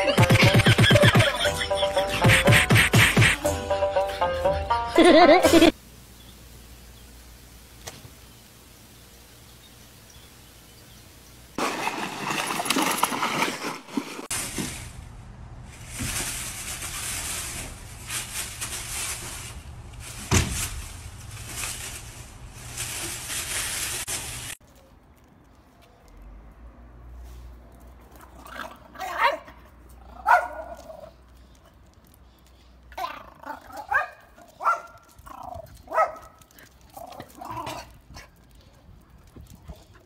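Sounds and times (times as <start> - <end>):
animals scuffling in dry leaves: 5.1 - 26.2, 29.4 - 40.0
faint steady hiss: 5.7 - 11.6.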